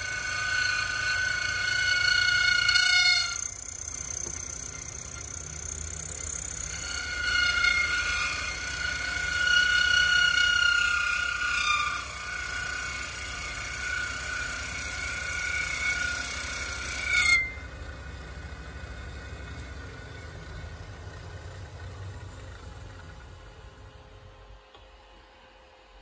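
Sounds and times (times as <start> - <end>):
end mill cutting brass whine: 0.0 - 24.5
spindle running hum: 0.0 - 26.0.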